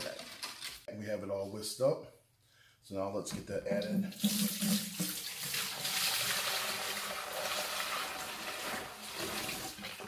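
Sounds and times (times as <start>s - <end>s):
liquid pouring into plastic bucket: 4.1s - 10.0s.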